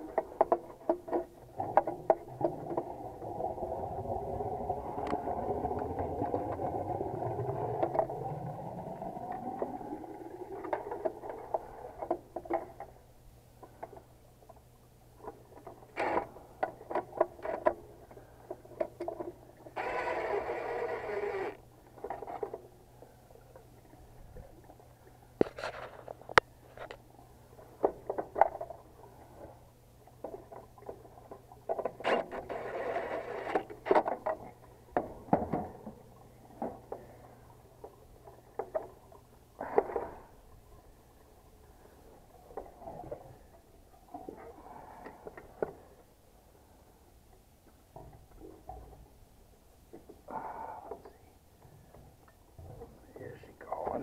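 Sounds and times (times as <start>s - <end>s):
cordless driver running: 19.8s - 21.6s.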